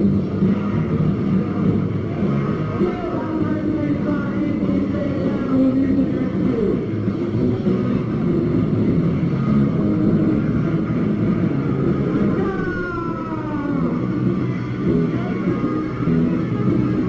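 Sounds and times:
bass: 0:00.0 - 0:17.0
distorted electric guitars: 0:00.0 - 0:17.0
drums: 0:00.0 - 0:17.0
high tone sliding downward: 0:09.0 - 0:17.0.

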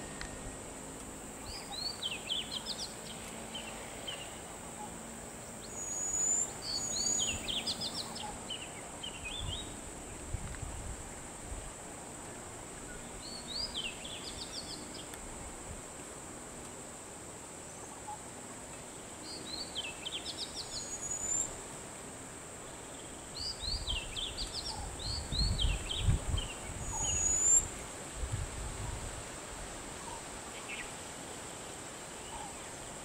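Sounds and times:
songbird chirping: 0:01.4 - 0:10.6, 0:17.7 - 0:21.6.

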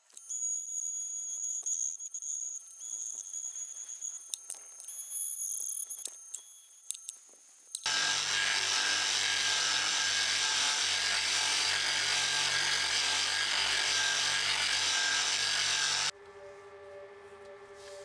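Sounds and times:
angle grinder sanding steel: 0:07.9 - 0:16.1.

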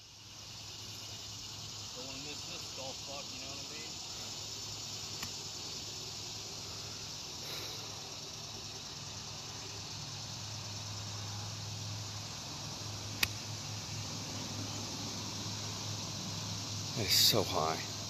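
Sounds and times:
steady outdoor hiss: 0:00.0 - 0:18.0
golf club striking ball: 0:13.2 - 0:13.4.

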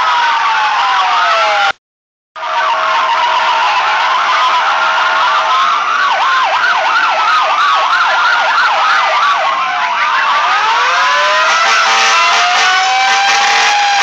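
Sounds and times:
sirens yelping and wailing: 0:00.0 - 0:01.8, 0:02.4 - 0:14.0
street noise: 0:00.0 - 0:01.8, 0:02.4 - 0:14.0.

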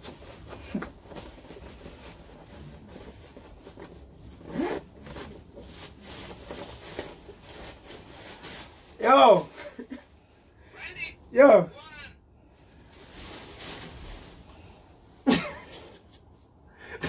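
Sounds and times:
plastic bin bag crinkling: 0:00.0 - 0:09.9, 0:12.7 - 0:14.8
bag zipper: 0:04.3 - 0:05.2.

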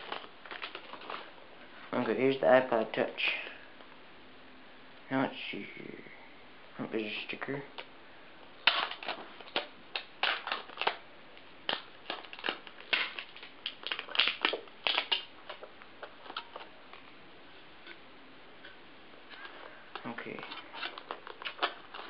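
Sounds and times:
plastic packaging crinkling: 0:00.0 - 0:01.4, 0:08.6 - 0:17.1, 0:18.6 - 0:22.0.

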